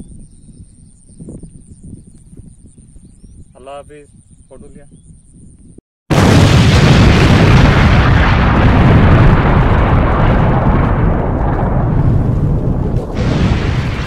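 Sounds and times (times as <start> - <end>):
deep rumble: 5.0 - 14.0
explosion boom with hiss: 6.1 - 14.0.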